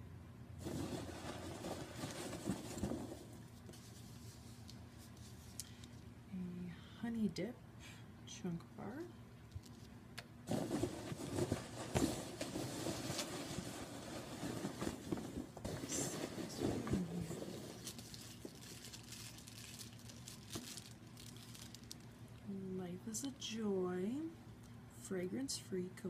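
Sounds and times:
rustling in cardboard box: 0:00.6 - 0:05.4, 0:10.5 - 0:22.0.

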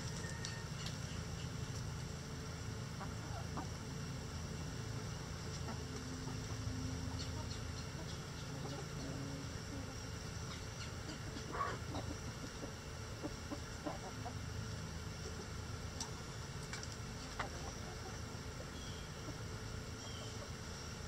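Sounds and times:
hens clucking: 0:02.9 - 0:03.9, 0:05.5 - 0:14.6, 0:15.2 - 0:20.8.

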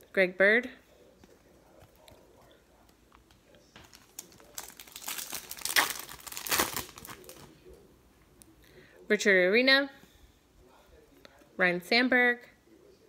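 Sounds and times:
card pack wrapper crinkling: 0:03.8 - 0:07.5.

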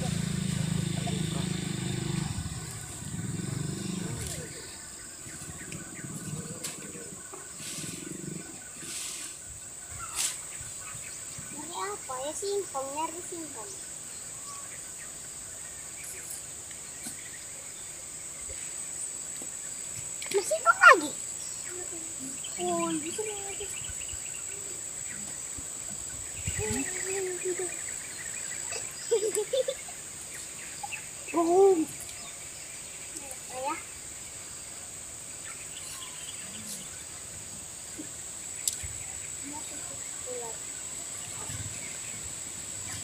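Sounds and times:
low rumbles: 0:00.0 - 0:08.6
low voices: 0:00.0 - 0:09.0
insects droning: 0:00.0 - 0:43.0
steady high hiss: 0:00.0 - 0:43.0
small click: 0:38.6 - 0:38.8.

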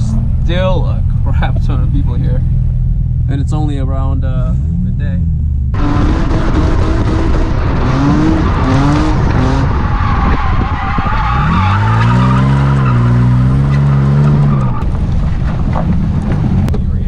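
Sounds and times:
car engine revving: 0:00.0 - 0:17.0
tire squeal: 0:05.8 - 0:15.0.

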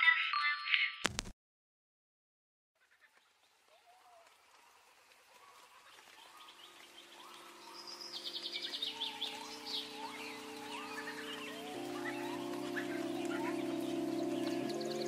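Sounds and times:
birdsong chirps and trills: 0:05.3 - 0:15.0
soft sustained music chords: 0:06.0 - 0:15.0.

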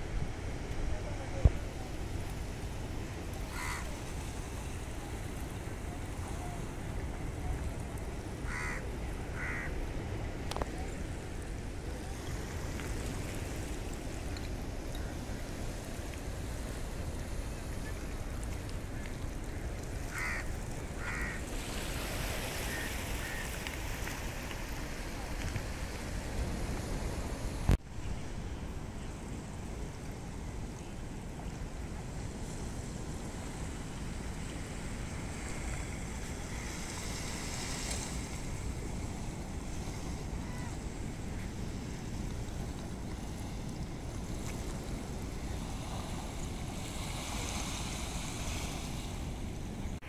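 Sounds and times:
surf on the shore: 0:00.0 - 0:50.0
wind: 0:00.0 - 0:50.0.

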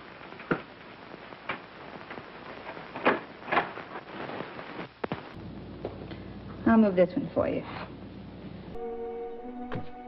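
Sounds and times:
film soundtrack hiss: 0:00.0 - 0:10.0.

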